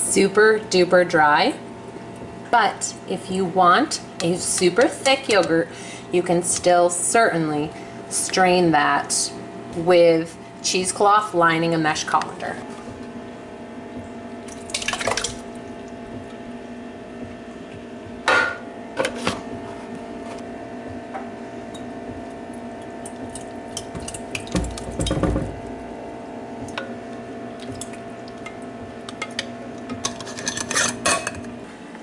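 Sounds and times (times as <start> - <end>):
steady low hum: 0.0 - 32.0
kitchenware knocking and clinking: 24.5 - 25.6.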